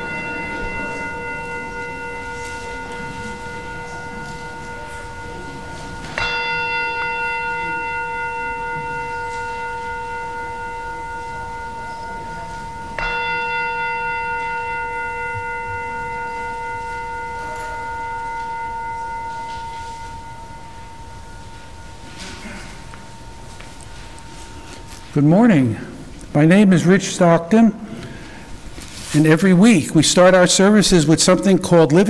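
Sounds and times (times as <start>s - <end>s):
bell ringing: 0.0s - 32.0s.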